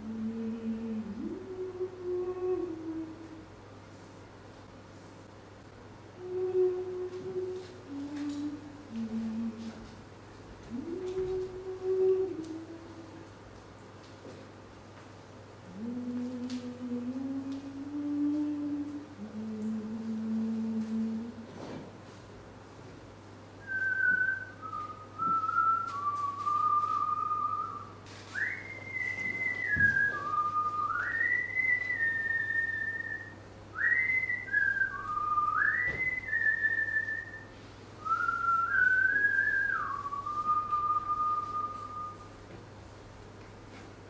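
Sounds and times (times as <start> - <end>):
person whistling a melody: 23.6 - 42.3.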